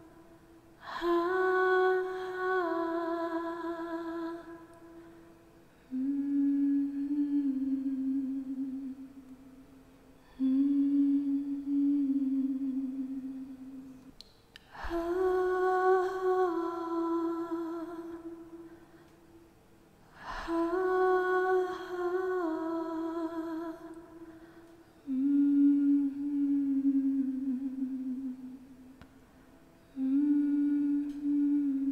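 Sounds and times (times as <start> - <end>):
woman humming: 5.9 - 9.2, 10.3 - 14.0, 25.0 - 28.7, 29.9 - 31.9.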